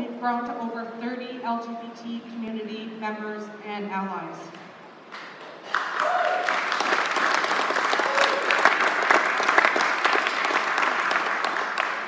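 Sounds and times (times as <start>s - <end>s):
audience clapping: 5.1s - 12.0s.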